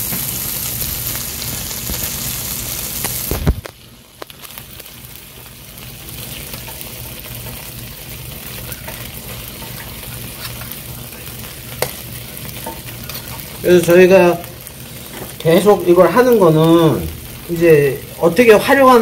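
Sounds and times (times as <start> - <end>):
meat sizzling on a griddle: 0.0 - 19.0
metal spatula scraping a plate: 12.6 - 13.5.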